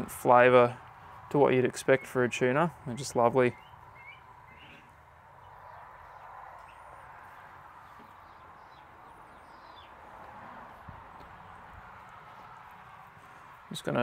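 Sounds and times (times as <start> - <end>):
outdoor background hiss: 0.0 - 14.0
faint bird chirps: 3.5 - 10.0.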